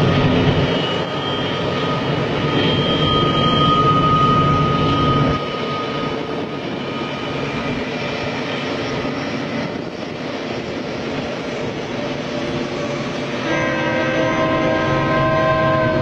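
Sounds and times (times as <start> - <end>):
freight train rumble: 0.0 - 16.0
locomotive air horn chord: 13.3 - 16.0.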